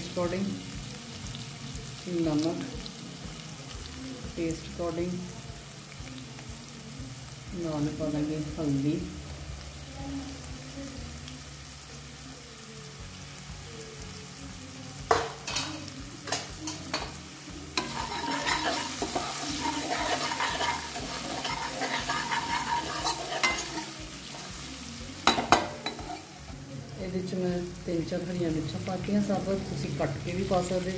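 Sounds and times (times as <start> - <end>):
spices sizzling in hot oil: 0.0 - 30.9
spoon scraping a pan: 17.8 - 26.5.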